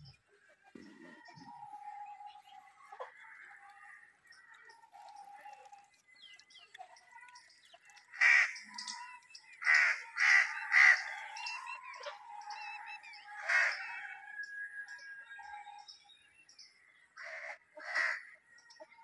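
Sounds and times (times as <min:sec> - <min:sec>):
small birds chirping: 0:00.0 - 0:19.0
crow cawing: 0:08.2 - 0:08.6, 0:17.2 - 0:18.4.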